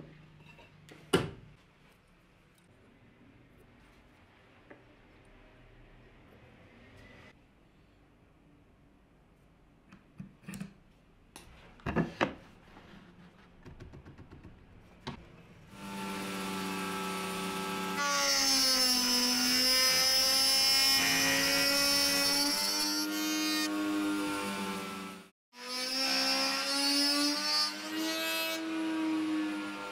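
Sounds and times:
router cutting wood: 15.7s - 29.9s.

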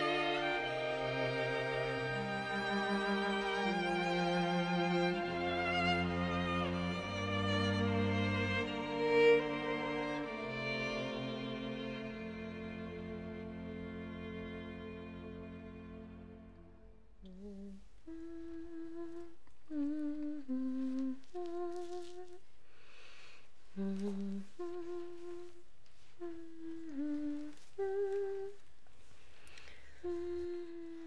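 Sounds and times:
person humming: 17.2s - 22.5s, 23.8s - 28.6s, 29.7s - 31.0s.

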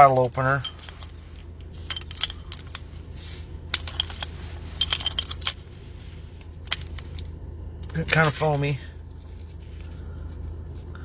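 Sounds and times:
bottle cap hiss: 3.1s - 3.4s.

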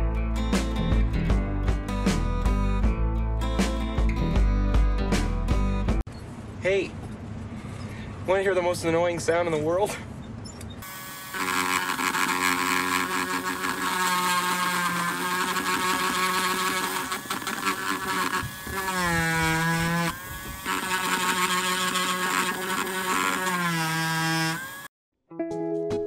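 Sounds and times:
rotary tool high whine: 10.2s - 24.9s.

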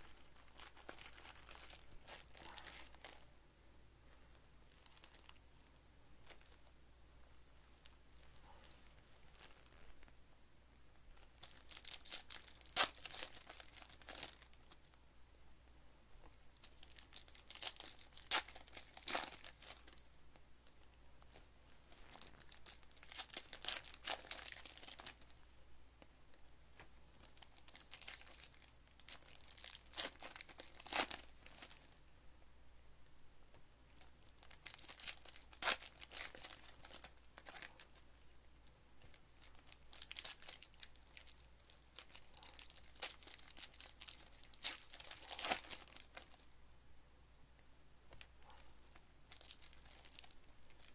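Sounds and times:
plastic wrappers crinkling: 0.0s - 3.2s, 4.7s - 5.4s, 6.2s - 6.7s, 8.2s - 9.8s, 11.1s - 14.9s, 16.6s - 25.4s, 26.8s - 32.0s, 33.9s - 46.5s, 48.2s - 50.9s
card packs being torn open: 11.4s - 14.5s, 34.4s - 37.7s, 39.6s - 46.3s.

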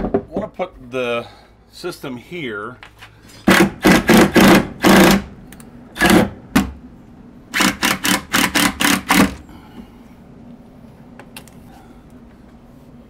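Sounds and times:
cordless drill driving screws: 7.6s - 9.4s.

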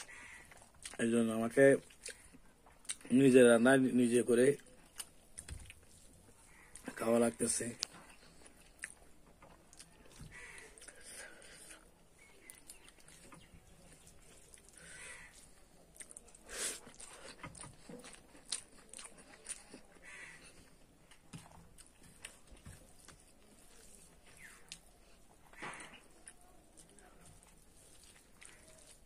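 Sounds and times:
person chewing food: 0.0s - 3.3s, 4.6s - 29.0s
fingers working food: 4.6s - 29.0s
small clicks and smacks: 4.8s - 6.0s.

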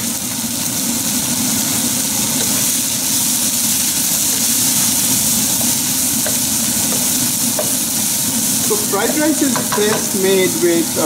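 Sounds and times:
vegetables sizzling in oil: 0.0s - 11.0s
steady low hum: 1.0s - 11.0s
wooden spatula stirring: 3.6s - 10.3s.

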